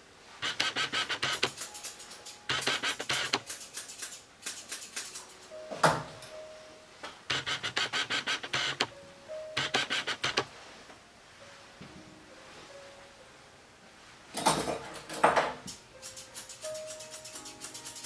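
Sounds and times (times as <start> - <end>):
grooming shears snipping: 0.4 - 5.5, 16.0 - 18.0.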